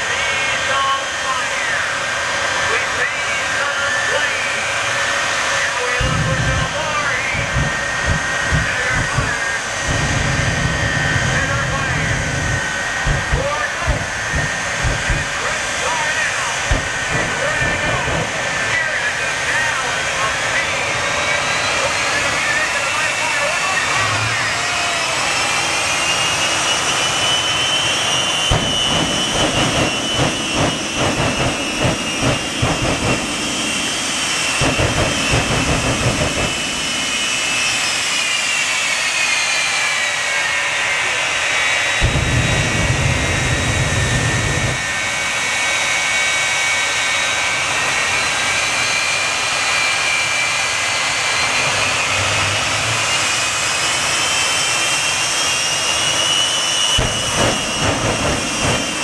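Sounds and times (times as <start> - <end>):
jet engine turbine whine: 0.0 - 59.0
heavy flame blast rumbles: 6.0 - 19.0, 28.4 - 37.3, 42.0 - 45.0, 57.0 - 59.0.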